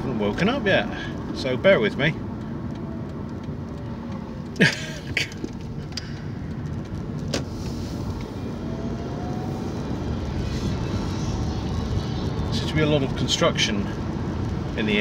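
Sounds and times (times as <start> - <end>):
car engine and road rumble: 0.0 - 15.0
faint rising whine: 7.6 - 13.3.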